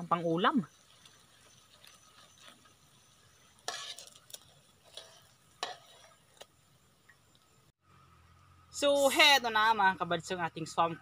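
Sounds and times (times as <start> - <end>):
oil sizzling: 0.0 - 7.7
metal tongs scraping a pan: 0.9 - 6.5.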